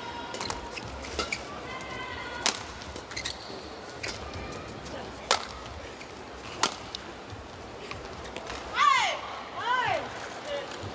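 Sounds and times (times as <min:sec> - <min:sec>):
racket hitting shuttlecock: 0:02.4 - 0:03.3, 0:05.2 - 0:05.6, 0:06.6 - 0:07.0.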